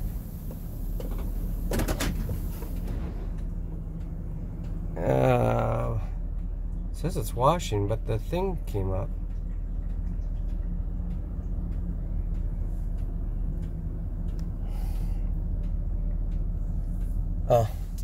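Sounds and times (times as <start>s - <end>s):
van engine idling: 0.0s - 18.0s
faint ticks: 9.1s - 18.0s.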